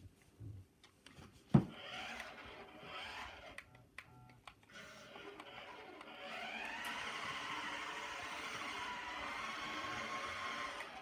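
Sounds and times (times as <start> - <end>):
toy car electric motor whining: 1.7 - 3.6, 4.7 - 11.0.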